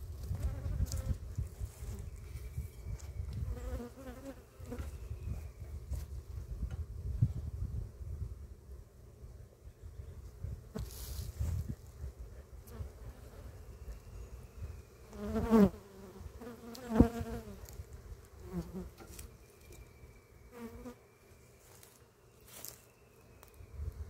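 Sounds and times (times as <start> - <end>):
bees buzzing around hive: 0.0 - 6.3, 8.4 - 24.0
single bee flying past: 0.2 - 2.1, 3.4 - 5.0, 15.0 - 19.0.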